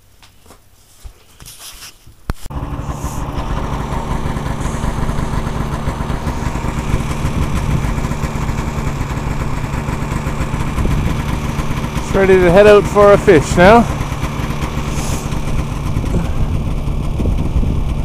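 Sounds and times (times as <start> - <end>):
snowmobile engine idling: 2.5 - 18.0.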